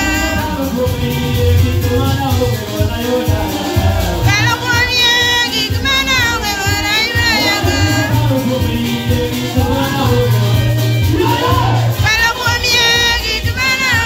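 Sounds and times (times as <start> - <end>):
music with steady bass line: 0.0 - 14.0
person singing into microphone: 0.0 - 14.0.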